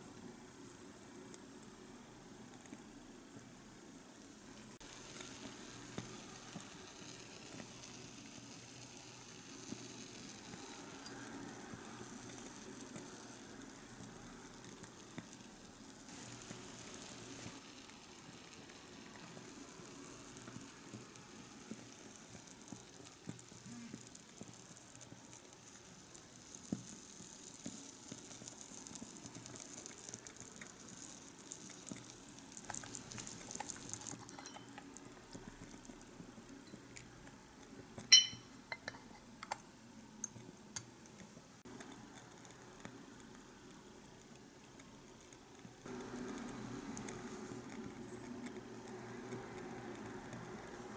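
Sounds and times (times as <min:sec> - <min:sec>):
broth sizzling: 0:03.7 - 0:37.2.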